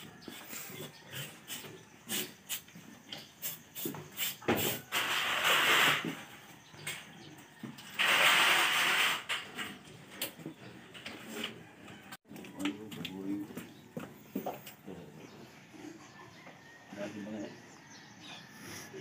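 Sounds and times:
small knocks and scrapes: 0:02.8 - 0:12.0
hose spraying water: 0:03.4 - 0:06.2, 0:08.0 - 0:09.3.

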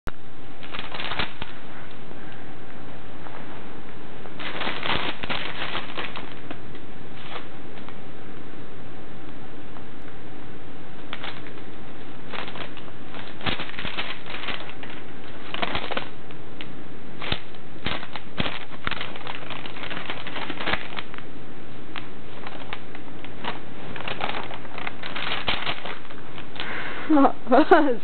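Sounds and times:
paper rustling and crinkling: 0:00.6 - 0:01.6, 0:04.4 - 0:08.0, 0:11.1 - 0:16.2, 0:17.2 - 0:21.2, 0:21.9 - 0:26.8.

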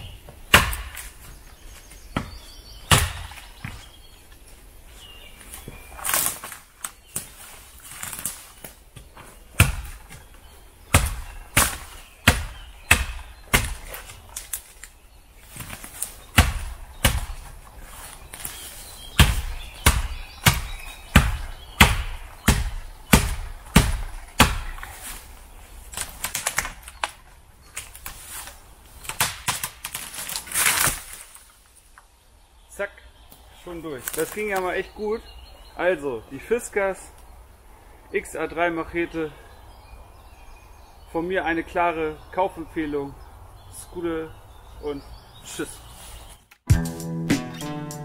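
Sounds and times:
tree toppling: 0:00.0 - 0:32.0, 0:33.6 - 0:35.2
machete chopping into tree trunk: 0:00.5 - 0:01.2, 0:02.2 - 0:03.8, 0:09.6 - 0:10.1, 0:10.9 - 0:14.6, 0:15.6 - 0:17.5, 0:19.1 - 0:25.1.

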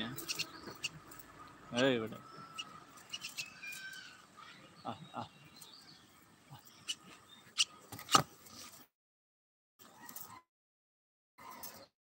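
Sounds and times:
faint bird chirps: 0:00.0 - 0:07.8.

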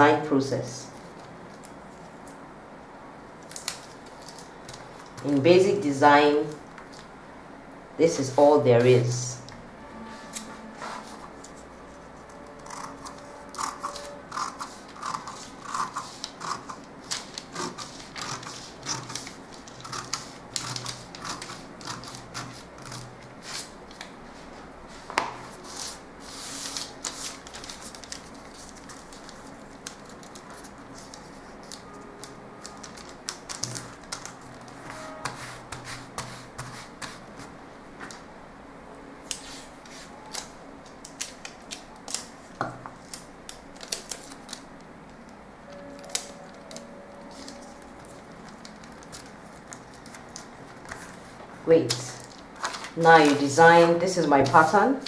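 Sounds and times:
paper rustling and crinkling: 0:03.4 - 0:05.4, 0:13.1 - 0:37.5, 0:39.4 - 0:44.8, 0:46.0 - 0:53.6
scissors cutting paper: 0:10.3 - 0:24.1, 0:25.6 - 0:37.2, 0:46.0 - 0:51.2.

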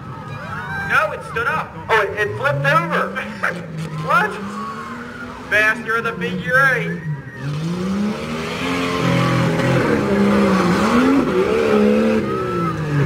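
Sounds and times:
car engine revving hard: 0:01.9 - 0:05.6, 0:06.4 - 0:13.0.

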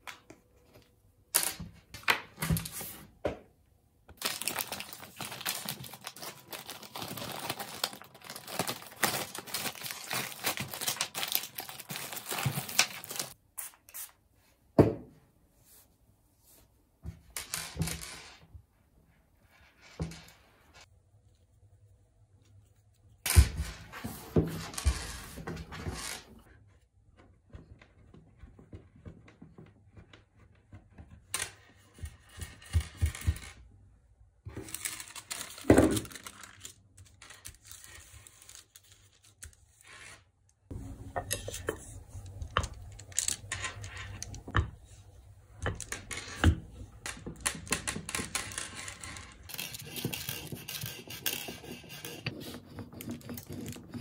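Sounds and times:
paper rustling: 0:04.2 - 0:14.1
rolling pin rolling clay: 0:40.7 - 0:54.0.

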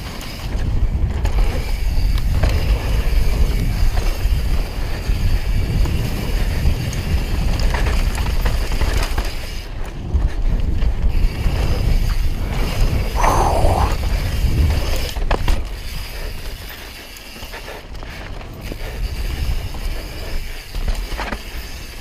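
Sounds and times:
wind on microphone: 0:13.0 - 0:14.8.

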